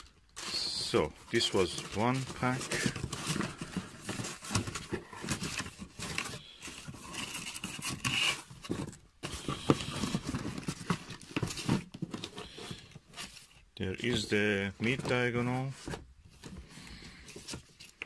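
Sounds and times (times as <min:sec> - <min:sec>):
plastic bags crinkling: 0:00.0 - 0:12.6
cardboard scraping and knocking: 0:01.4 - 0:13.4.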